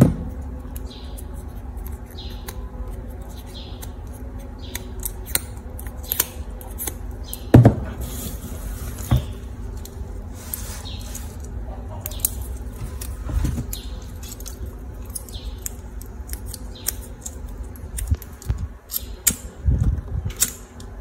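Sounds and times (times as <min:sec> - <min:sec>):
small scissors snipping plastic: 0:01.6 - 0:07.5, 0:12.0 - 0:20.9.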